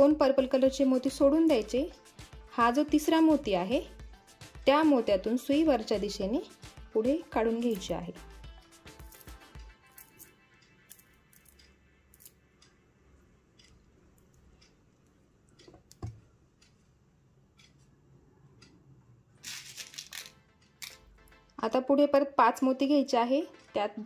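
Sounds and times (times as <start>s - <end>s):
beads clicking: 8.9s - 12.8s, 19.4s - 21.3s.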